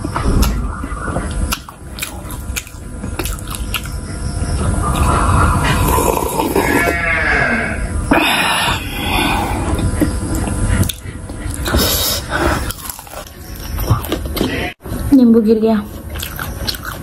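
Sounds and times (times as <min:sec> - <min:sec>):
low humming sliding in pitch: 0:00.0 - 0:14.8.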